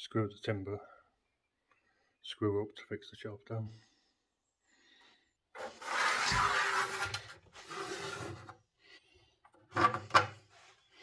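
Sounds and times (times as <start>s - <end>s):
scraping: 5.6s - 8.6s.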